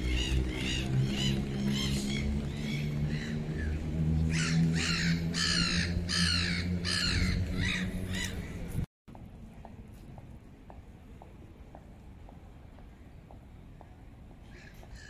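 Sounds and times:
crow cawing: 4.3 - 8.3.

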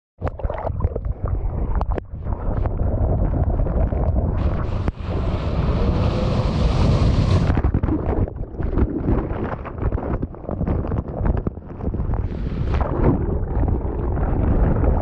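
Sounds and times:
ocean wave breaking: 4.4 - 7.7
hiss of curling wave: 4.6 - 7.5.

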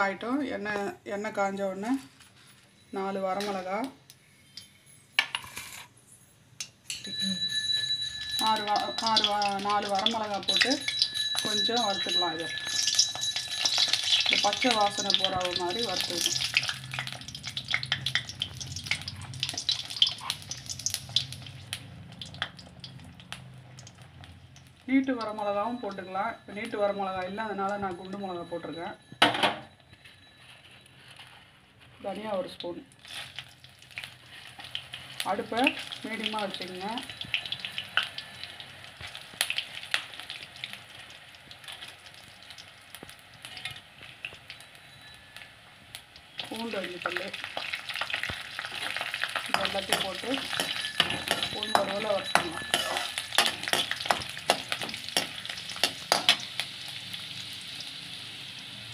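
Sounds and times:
ladle stirring in steel pan: 7.0 - 21.4, 47.7 - 56.7
chillies sizzling in hot oil: 7.0 - 28.4, 31.8 - 58.9.

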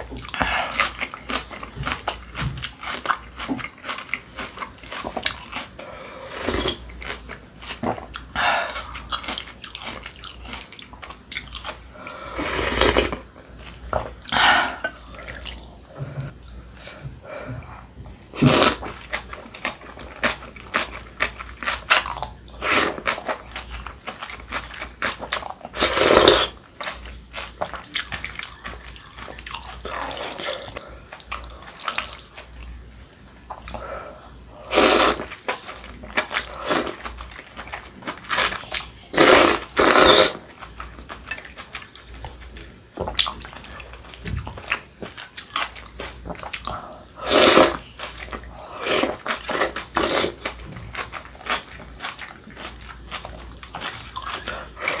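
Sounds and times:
chewing: 0.0 - 12.2, 18.8 - 32.7, 35.2 - 55.0
wet slurping of noodles: 34.6 - 35.3, 39.1 - 40.4, 47.2 - 47.8.

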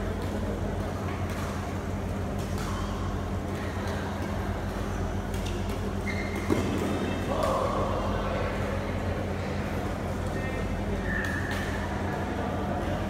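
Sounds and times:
low hum of hall: 0.0 - 13.0
brief high squeak: 6.0 - 6.5.

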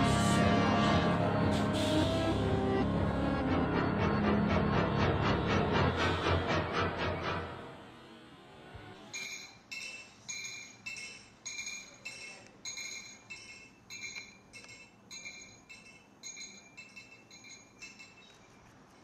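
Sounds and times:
music box tune: 9.2 - 18.6.

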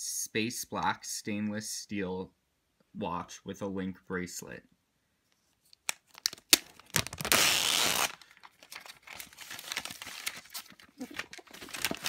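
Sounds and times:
plastic film crinkling: 5.6 - 12.0
plastic shrink-wrap tearing: 5.8 - 12.0.

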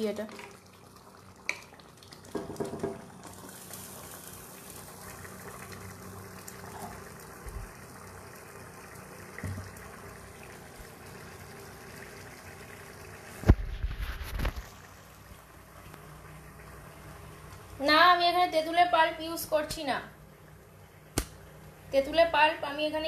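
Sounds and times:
stew simmering and bubbling: 0.0 - 17.8.

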